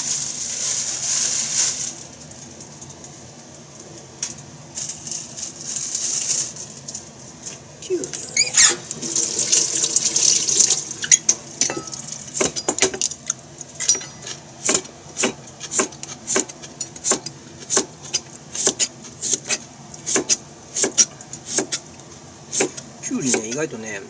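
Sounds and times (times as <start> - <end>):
running tap water: 8.2 - 12.8
knife slicing on cutting board: 22.5 - 22.8.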